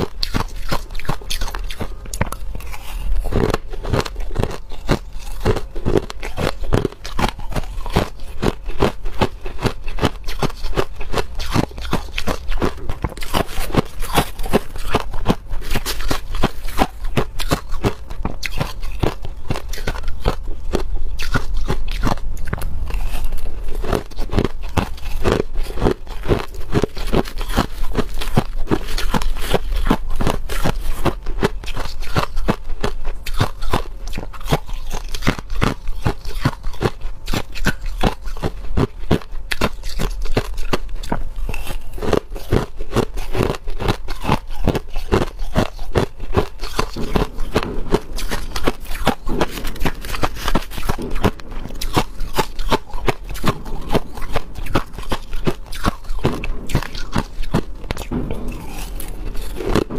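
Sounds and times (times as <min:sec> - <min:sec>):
crushed ice crunching: 0:43.3 - 0:59.9.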